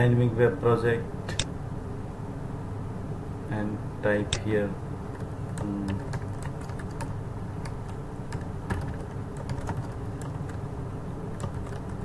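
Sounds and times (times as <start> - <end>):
low steady hum: 0.0 - 12.0
keyboard typing: 5.1 - 12.0.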